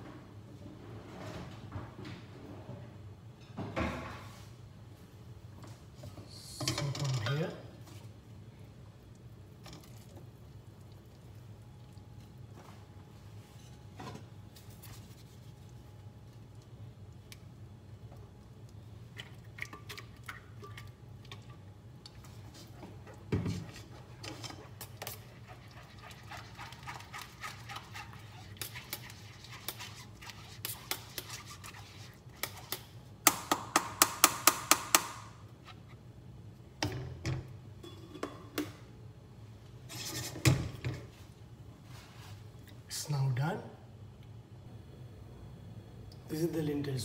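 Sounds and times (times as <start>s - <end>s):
spatula scraping through sieve: 23.5s - 32.8s, 39.9s - 40.5s.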